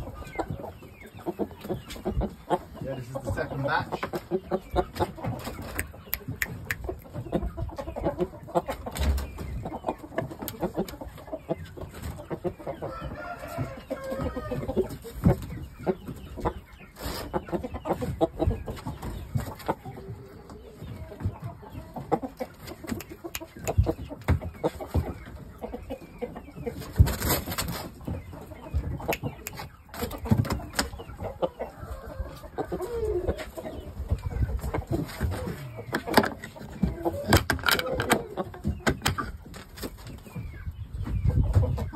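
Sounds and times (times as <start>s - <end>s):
chickens clucking: 0.0s - 41.9s
rooster crowing: 12.9s - 14.7s.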